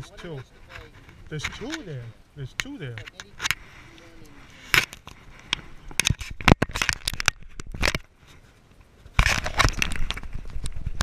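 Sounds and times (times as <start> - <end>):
rubbing and scraping on housing: 0.0 - 7.1.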